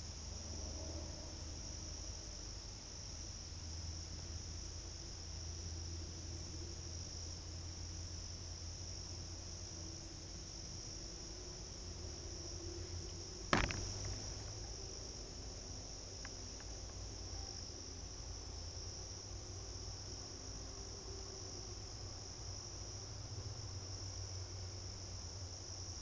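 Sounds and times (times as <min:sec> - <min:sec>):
insects chirping: 0:00.0 - 0:26.0
sharp knock: 0:13.5 - 0:14.6.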